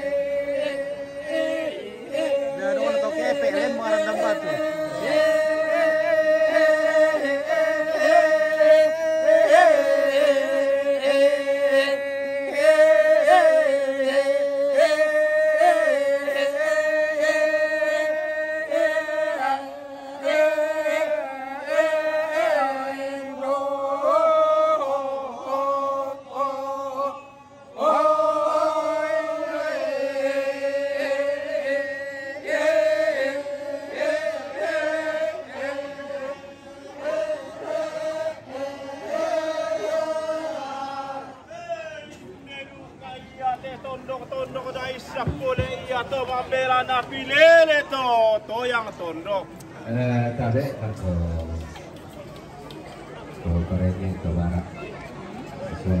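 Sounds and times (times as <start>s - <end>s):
group of voices chanting: 0.0s - 11.0s, 27.8s - 41.6s.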